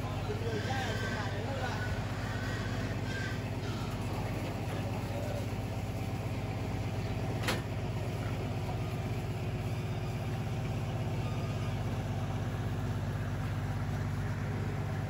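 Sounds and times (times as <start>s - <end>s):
truck engine idling: 0.0s - 15.0s.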